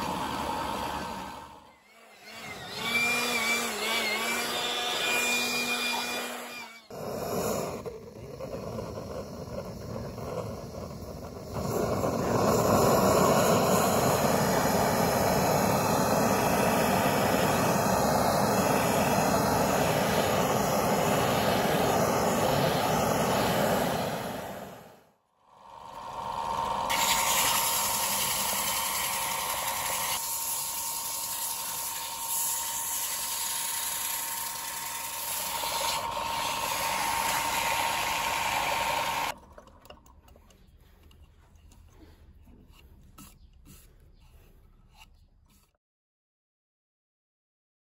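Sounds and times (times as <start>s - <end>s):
blowtorch flame rushing: 0.0s - 1.6s, 6.9s - 25.1s, 26.1s - 39.3s
wood lathe humming: 0.0s - 7.9s, 11.5s - 24.5s, 25.6s - 39.3s.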